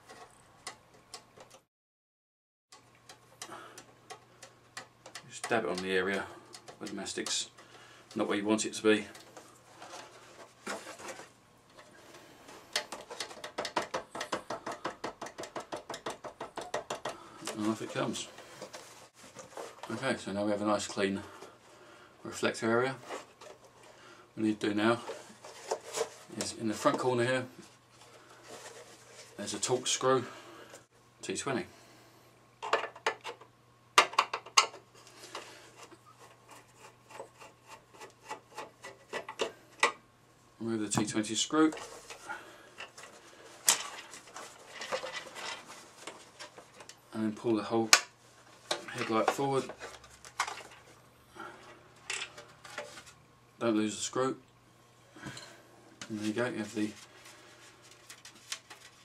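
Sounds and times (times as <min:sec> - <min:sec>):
rapid tapping on plastic: 0:12.8 - 0:17.6.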